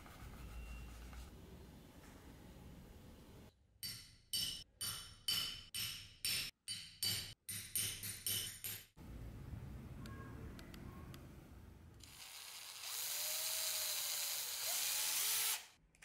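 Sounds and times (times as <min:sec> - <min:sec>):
hammer striking metal punch: 0:03.8 - 0:09.0.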